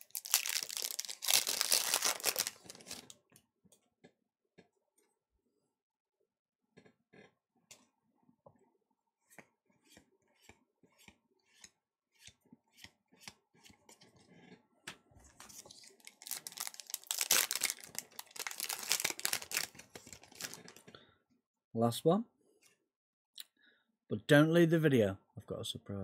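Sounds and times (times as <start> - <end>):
foil wrapper tearing and crinkling: 0.0 - 3.1, 16.0 - 20.8.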